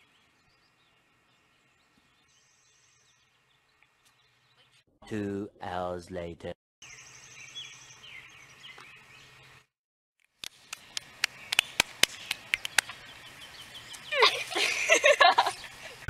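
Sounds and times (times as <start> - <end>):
faint birds chirping: 0.0 - 4.9, 6.8 - 9.7, 10.6 - 16.0
hand claps and slaps: 10.4 - 13.0.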